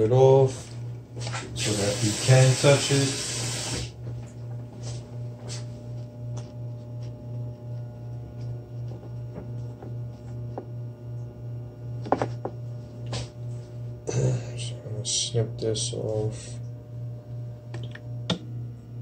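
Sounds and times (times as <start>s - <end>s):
pulsing low hum: 4.0s - 19.0s.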